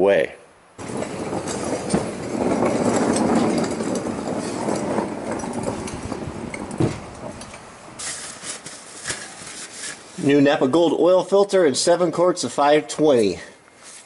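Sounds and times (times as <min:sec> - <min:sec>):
creeper wheels rolling on concrete: 0:00.8 - 0:14.0
paper towel scrubbing: 0:08.0 - 0:10.3.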